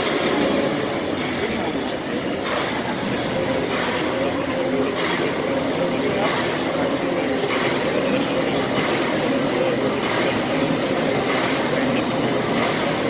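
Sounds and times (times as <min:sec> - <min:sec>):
tractor engines echoing in hall: 0:00.0 - 0:13.0.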